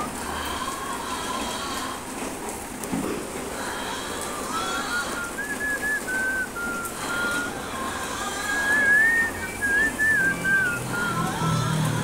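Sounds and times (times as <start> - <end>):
faint steady hiss: 0.0 - 11.7
person whistling a tune: 4.9 - 7.6, 8.7 - 11.4.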